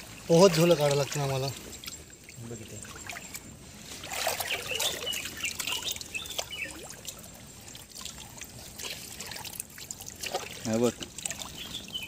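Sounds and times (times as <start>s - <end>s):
creek water sloshing and trickling: 0.0s - 12.0s
high bird chirping: 1.6s - 7.1s, 11.5s - 12.0s.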